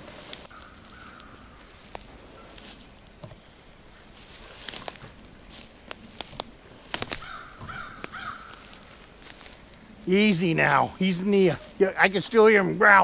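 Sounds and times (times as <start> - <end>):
footsteps through undergrowth: 0.0 - 13.0
twigs snapping underfoot: 0.1 - 9.9.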